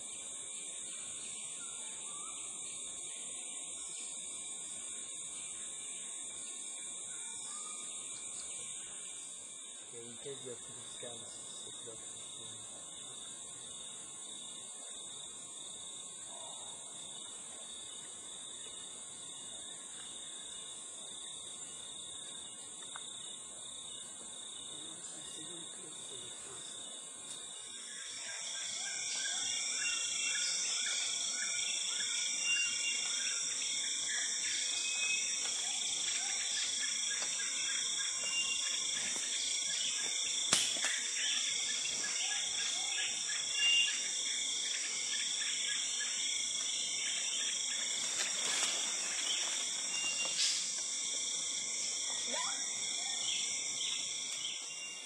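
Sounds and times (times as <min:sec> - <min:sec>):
insect chorus buzzing and trilling: 0:00.0 - 0:55.0
sharp snap: 0:40.5 - 0:41.0.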